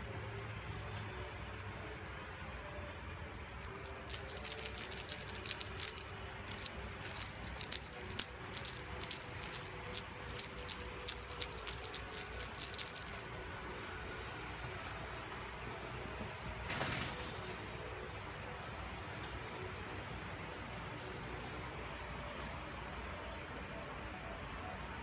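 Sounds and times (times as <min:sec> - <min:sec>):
small bell jingling: 0:03.4 - 0:13.3, 0:14.2 - 0:17.8.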